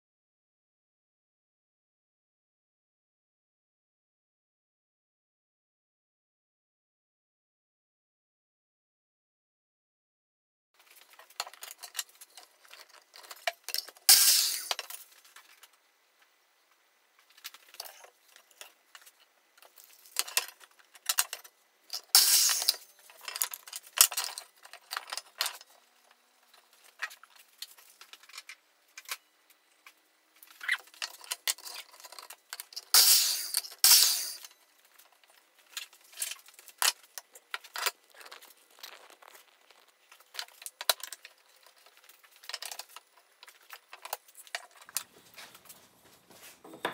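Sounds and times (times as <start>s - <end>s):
wooden pieces and tools clattering: 17.2s - 29.2s, 30.4s - 46.9s.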